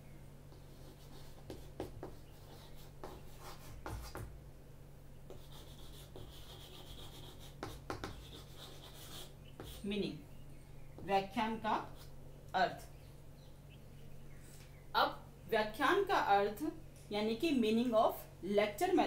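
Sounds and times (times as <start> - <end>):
chalk scratching on chalkboard: 0.5 - 4.3, 5.3 - 9.9.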